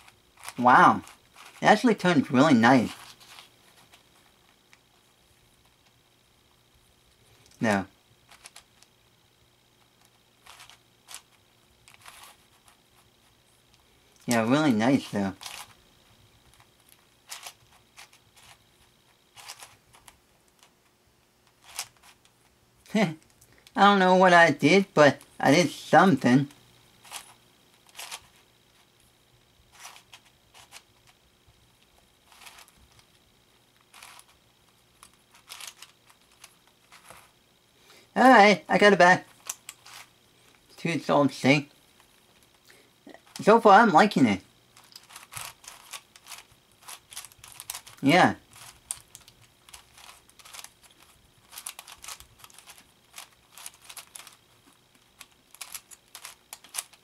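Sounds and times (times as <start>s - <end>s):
puzzle cube plastic clicks: 0.0s - 4.9s, 8.3s - 8.9s, 9.9s - 12.8s, 13.7s - 15.8s, 16.4s - 20.7s, 21.4s - 22.4s, 26.5s - 28.5s, 29.7s - 31.2s, 31.8s - 37.4s, 39.2s - 40.7s, 44.8s - 57.0s
puzzle cube clicking: 19.3s - 20.7s, 21.5s - 22.2s, 27.0s - 28.4s, 32.3s - 33.1s, 33.9s - 34.4s, 35.0s - 37.3s, 44.8s - 54.4s, 55.0s - 57.0s.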